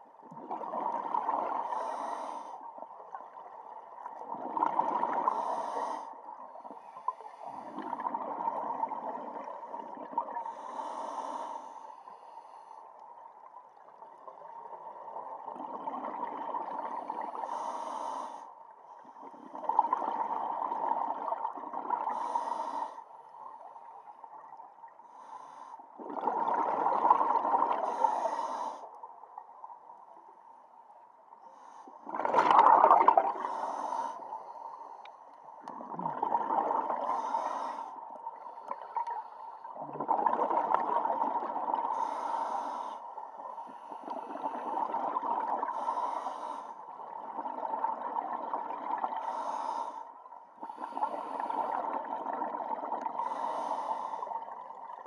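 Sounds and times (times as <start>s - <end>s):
diver breathing through regulator: 1.6s - 2.6s, 5.0s - 6.2s, 10.4s - 12.9s, 17.4s - 18.5s, 22.0s - 23.1s, 25.1s - 25.9s, 27.7s - 29.0s, 33.2s - 39.8s, 41.8s - 46.9s, 49.1s - 52.0s, 53.0s - 54.4s.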